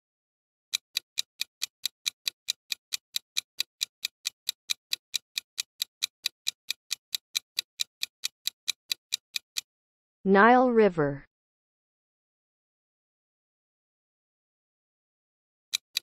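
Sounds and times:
clock ticking: 0:00.7 - 0:09.7, 0:15.7 - 0:16.0.

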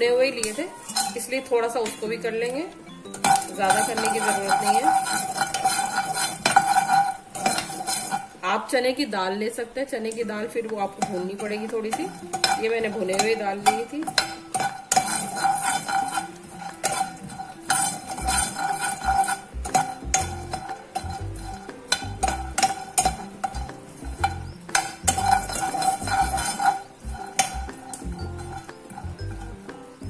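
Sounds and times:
spatula scraping a pan: 0:00.4 - 0:02.1, 0:03.0 - 0:08.4, 0:10.7 - 0:30.0
nuts rattling against a pan: 0:03.1 - 0:08.3, 0:11.0 - 0:29.6.

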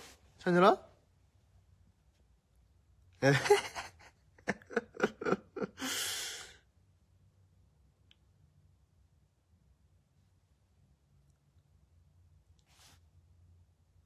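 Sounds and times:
man laughing breaths: 0:03.5 - 0:06.6
man sighing: 0:05.8 - 0:06.6.

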